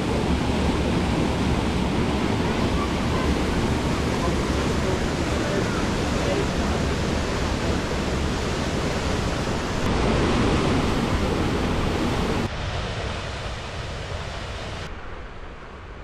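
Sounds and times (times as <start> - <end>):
waterfall roaring: 0.0 - 12.7.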